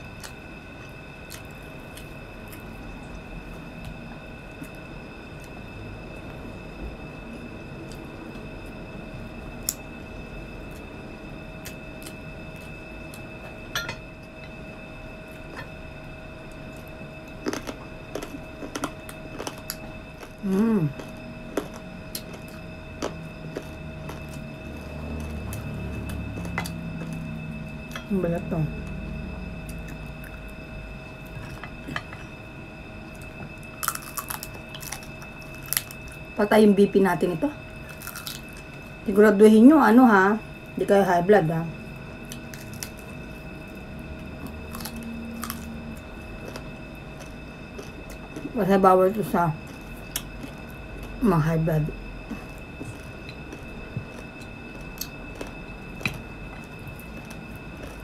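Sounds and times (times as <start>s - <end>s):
faint steady whine: 0.0s - 58.0s
steady high hum: 0.0s - 58.0s
crispy food crunching: 16.6s - 28.1s, 33.1s - 36.3s, 37.7s - 39.1s, 42.2s - 58.0s
soft chewing: 16.7s - 27.3s, 33.2s - 36.1s, 37.8s - 38.8s, 52.2s - 58.0s.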